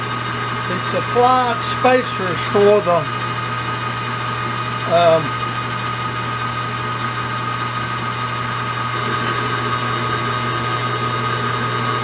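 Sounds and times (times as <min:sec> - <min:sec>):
shop machinery hum: 0:00.0 - 0:12.0
high whine: 0:08.9 - 0:12.0.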